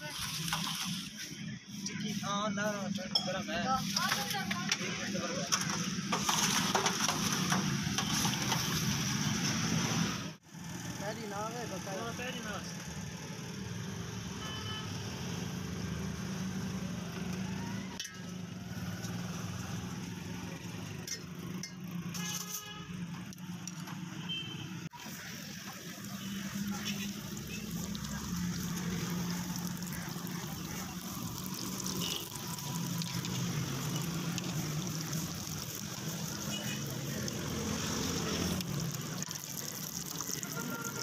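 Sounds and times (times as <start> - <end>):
vehicle horn: 14.4 - 15.0, 22.1 - 23.0, 24.2 - 24.8, 31.9 - 32.5, 40.4 - 41.0
hum of passing vehicles: 26.4 - 39.5.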